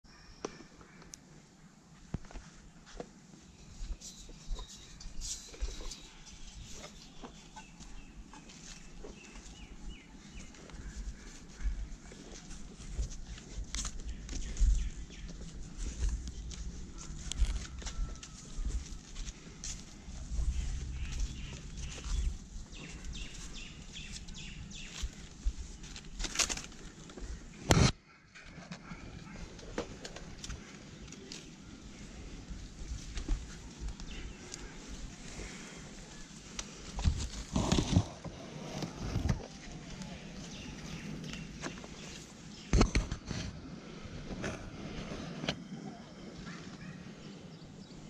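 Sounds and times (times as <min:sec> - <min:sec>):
birds chirping: 0:00.1 - 0:26.2, 0:28.8 - 0:43.4, 0:45.6 - 0:48.0
rustling against palm trunk: 0:02.0 - 0:28.0, 0:29.2 - 0:45.8
hands and feet scuffing on trunk: 0:05.6 - 0:26.8
bird chirping: 0:20.1 - 0:25.9.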